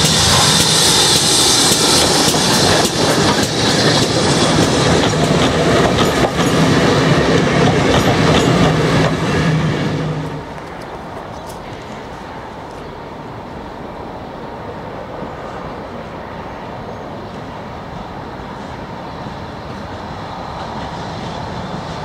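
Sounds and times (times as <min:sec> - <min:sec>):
train wheels clicking over rail joints: 0:00.0 - 0:12.9
steam locomotive rushing and hissing: 0:00.0 - 0:22.0.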